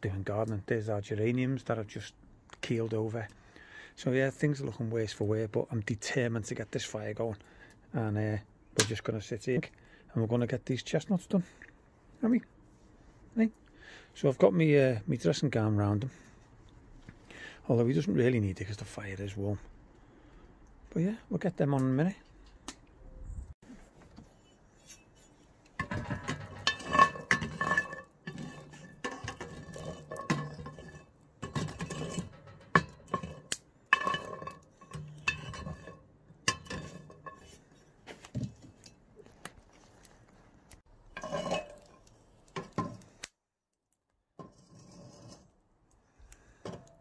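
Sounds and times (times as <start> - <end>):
metal pan clattering on metal: 25.8 - 37.6, 41.2 - 42.0.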